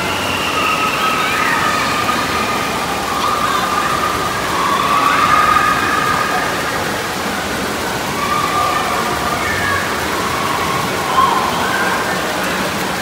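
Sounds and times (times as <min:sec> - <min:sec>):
churning water: 0:00.0 - 0:13.0
faint voices: 0:00.0 - 0:13.0.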